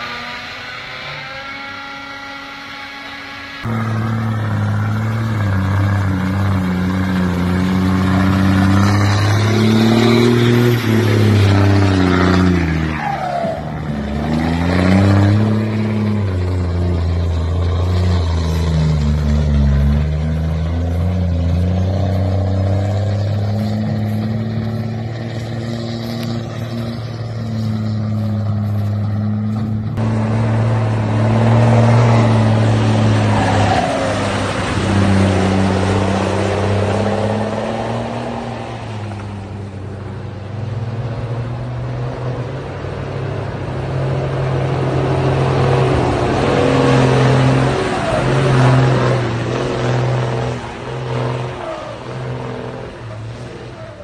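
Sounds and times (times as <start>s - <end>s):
diesel truck engine revving: 0.0s - 54.0s.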